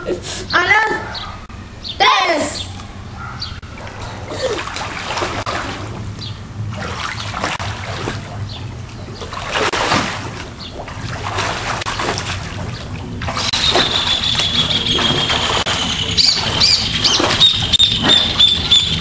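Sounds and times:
pool water splashing: 3.2s - 19.0s.

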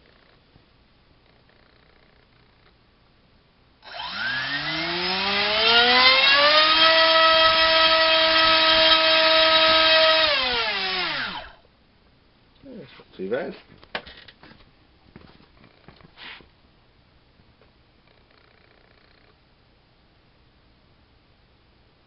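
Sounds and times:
electric motor propeller whine: 3.8s - 11.6s.

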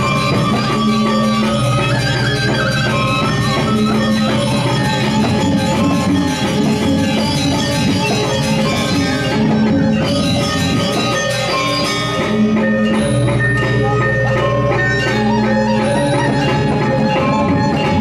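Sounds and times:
drums: 0.0s - 18.0s
metallophones ringing: 0.0s - 18.0s.

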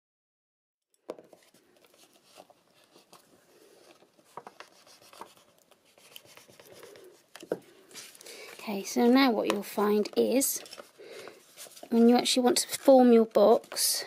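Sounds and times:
paper rustling: 1.1s - 14.0s
bone folder scratching paper: 3.9s - 7.2s.

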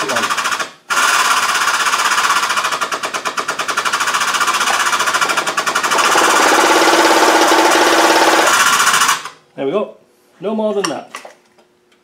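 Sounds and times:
hydraulic press pump chattering: 3.2s - 9.3s.

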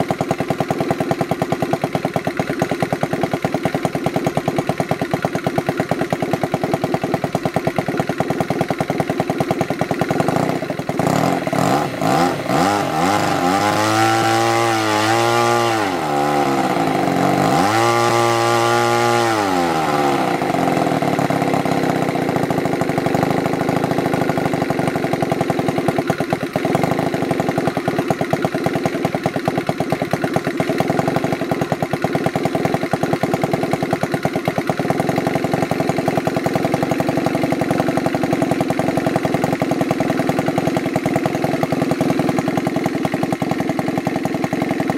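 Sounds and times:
model engine idling and revving: 0.0s - 44.9s.

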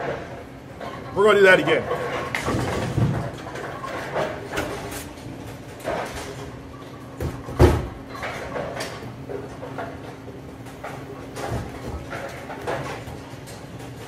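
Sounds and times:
bowling ball rolling: 1.9s - 13.3s
bowling pins crashing: 2.0s - 4.9s.

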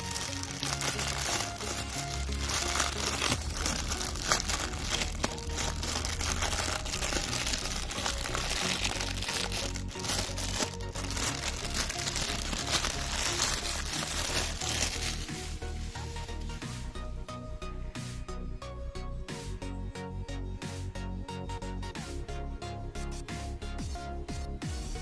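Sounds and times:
plastic bag crinkling: 0.0s - 16.6s
background music: 0.0s - 25.0s.

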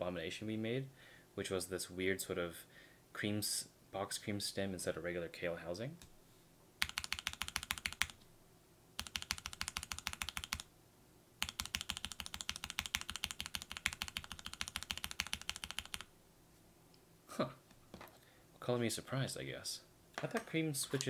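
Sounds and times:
rapid typing on mechanical keyboard: 6.8s - 8.2s, 9.0s - 10.7s, 11.4s - 16.1s.

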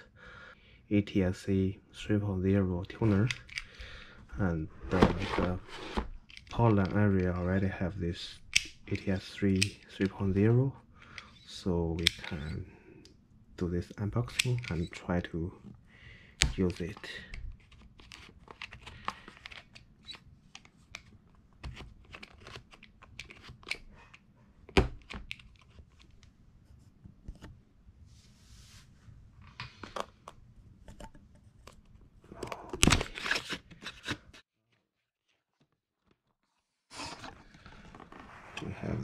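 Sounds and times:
cardboard box being handled: 4.9s - 6.0s.

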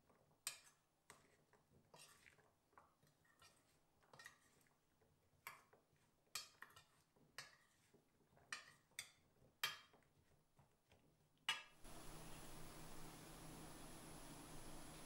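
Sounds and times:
metal spoon scraping a pot: 0.1s - 10.0s.

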